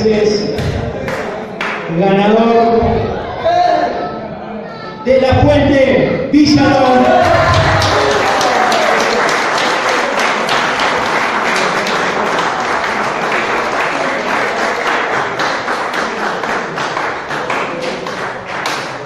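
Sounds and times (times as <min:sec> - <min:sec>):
crowd applauding: 0:06.9 - 0:19.0.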